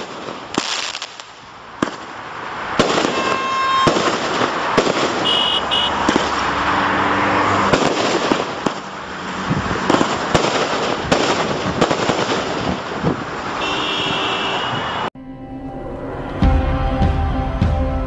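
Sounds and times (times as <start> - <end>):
firework bangs: 0.0 - 6.9, 7.6 - 14.7.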